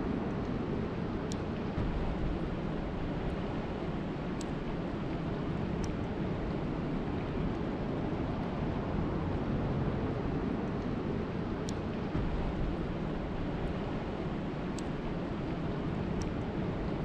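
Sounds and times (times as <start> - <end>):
steady rain falling: 0.1 - 17.0
drop ticks: 1.3 - 2.4, 4.3 - 4.8, 5.8 - 6.0, 11.6 - 12.8, 14.7 - 15.6.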